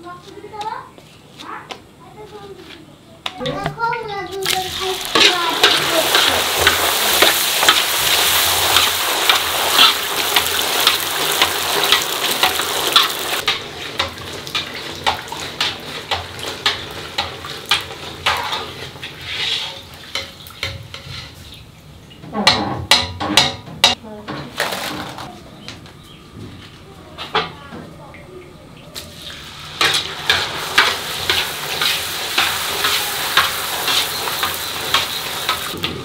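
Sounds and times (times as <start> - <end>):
dough frying in hot oil: 4.4 - 23.6, 29.0 - 36.0.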